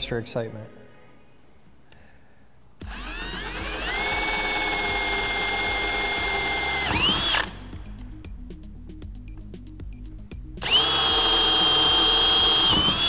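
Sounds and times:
background music: 0:02.7 - 0:13.0
cordless drill whining: 0:02.8 - 0:07.7, 0:10.6 - 0:13.0.

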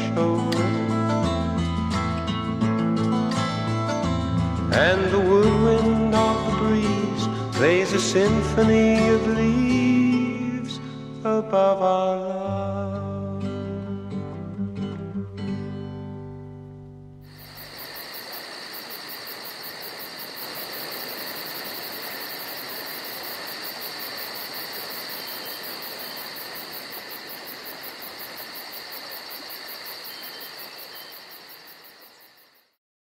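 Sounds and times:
even hiss: 0:17.3 - 0:32.2.

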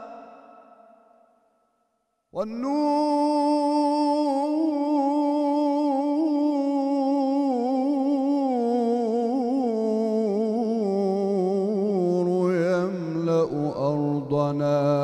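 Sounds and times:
man chanting unaccompanied: 0:02.4 - 0:15.0.

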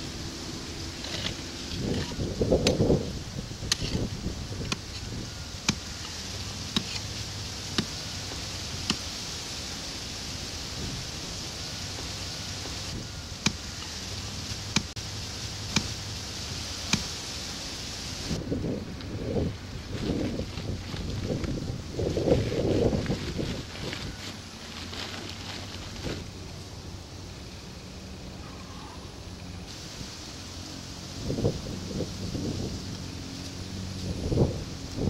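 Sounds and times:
outdoor hiss: 0:00.0 - 0:35.0
digging tool striking clay: 0:05.6 - 0:07.1, 0:13.4 - 0:13.9, 0:14.6 - 0:15.0, 0:15.7 - 0:16.0.

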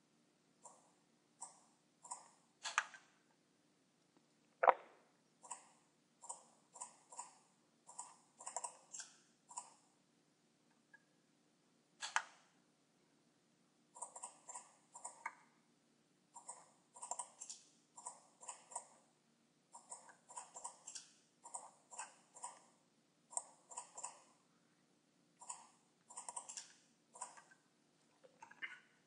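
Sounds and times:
computer mouse clicking: 0:01.4 - 0:03.0, 0:06.2 - 0:09.8, 0:12.0 - 0:12.4, 0:14.0 - 0:15.4, 0:19.8 - 0:22.7, 0:23.3 - 0:24.3, 0:25.4 - 0:27.6.

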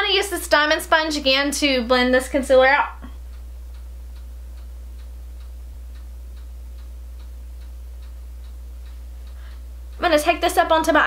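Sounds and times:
steady low hum: 0:00.0 - 0:11.0
faint even ticking: 0:03.0 - 0:11.0.

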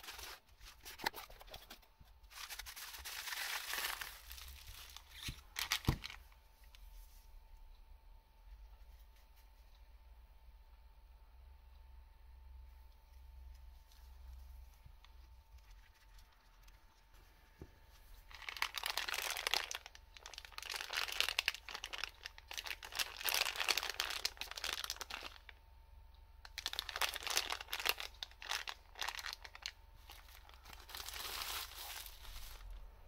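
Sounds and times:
plastic bag crinkling: 0:00.0 - 0:01.7, 0:02.3 - 0:06.3, 0:18.3 - 0:25.5, 0:26.5 - 0:32.9.

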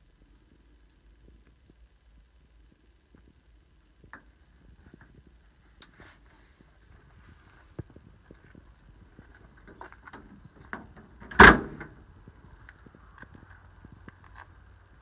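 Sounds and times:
van door shutting with metal thunk: 0:10.8 - 0:12.0.

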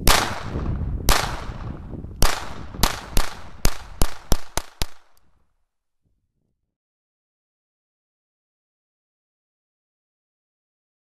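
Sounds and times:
pistol shots with ringing echo: 0:00.0 - 0:05.2.

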